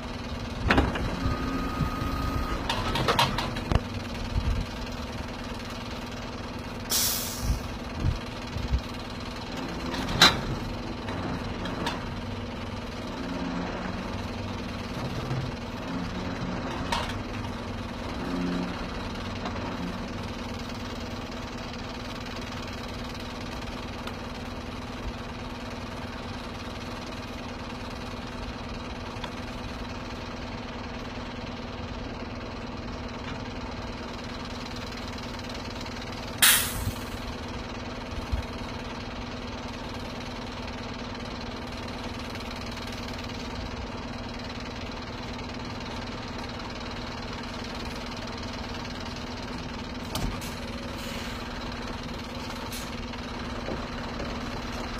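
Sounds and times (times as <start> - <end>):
diesel truck engine idling: 0.0 - 54.9
hiss of released air: 6.9 - 7.7, 36.4 - 37.2.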